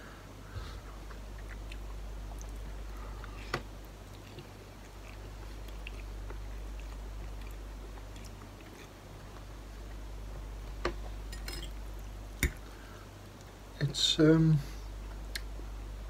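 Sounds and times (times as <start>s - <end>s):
steady low hum: 0.0s - 16.0s
person chewing noodles: 0.9s - 10.1s.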